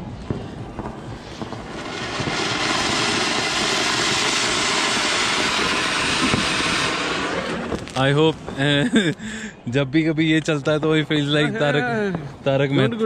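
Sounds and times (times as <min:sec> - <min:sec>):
firework fountain hissing: 0:00.0 - 0:09.6.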